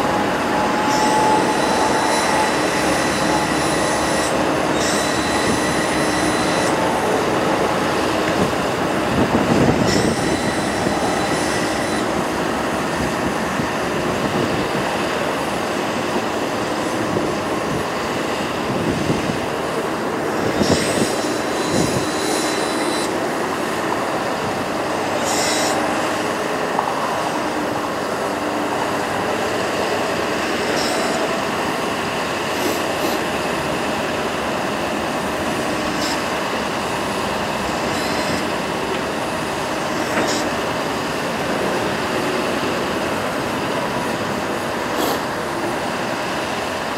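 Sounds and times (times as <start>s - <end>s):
truck hydraulics mechanical drone: 0.0s - 46.9s
brief high squeals: 0.4s - 7.0s.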